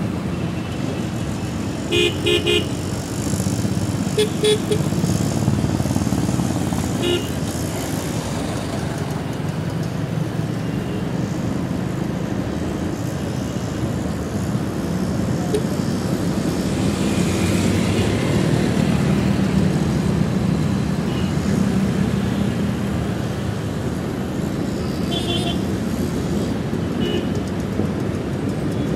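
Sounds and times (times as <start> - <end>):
surrounding traffic: 0.0 - 28.9
motorcycle engine riding: 2.5 - 10.5.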